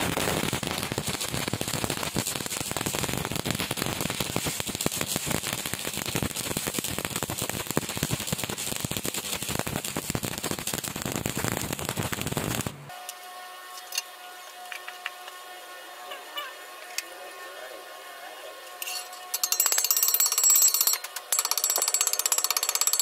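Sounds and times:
welding arc crackling: 0.0 - 13.0.

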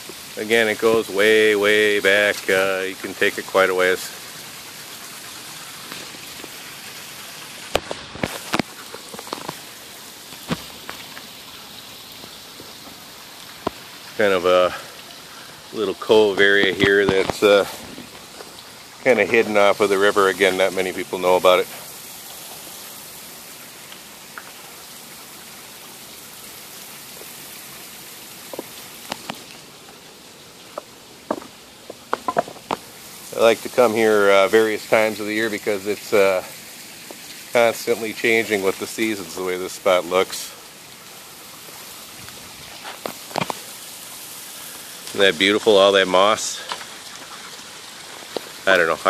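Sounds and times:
water hissing: 0.0 - 49.0
sharp taps and knocks: 7.7 - 9.6, 30.7 - 32.9.

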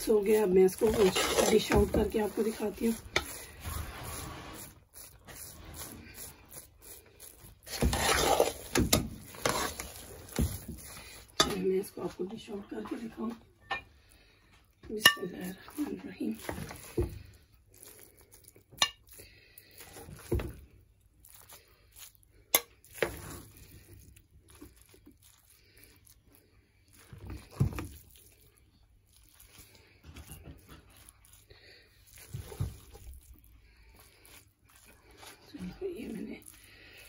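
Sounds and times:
spoon scraping steel pot: 0.0 - 12.3, 14.9 - 17.0, 18.7 - 19.2.

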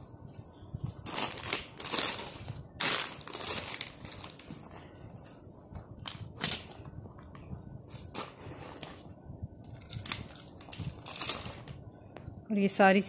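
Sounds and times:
plastic crisp packets crinkling: 1.0 - 4.5, 9.8 - 11.8.

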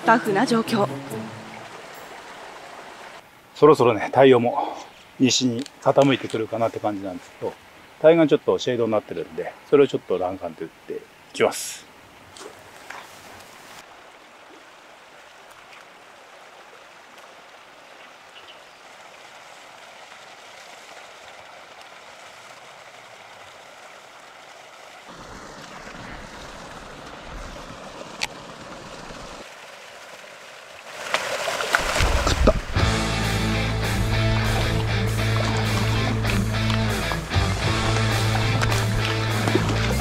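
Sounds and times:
fish splashing: 18.9 - 40.0
lure gurgling on water: 32.0 - 40.0.

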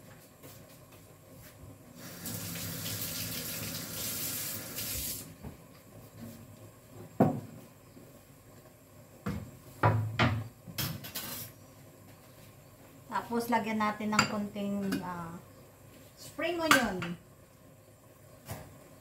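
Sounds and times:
knocks on kitchen counter: 7.2 - 7.6, 9.2 - 10.9.

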